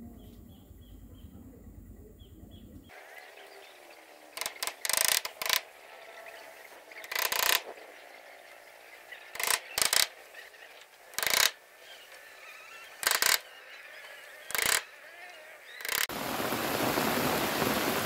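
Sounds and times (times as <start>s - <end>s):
bamboo scraping and rattling: 2.9s - 16.1s.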